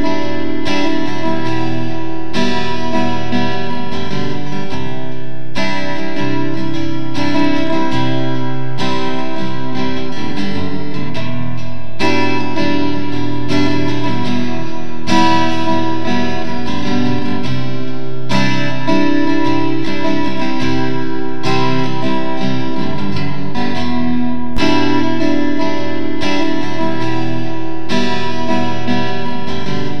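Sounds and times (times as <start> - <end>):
instrumental guitar music: 0.0 - 30.0.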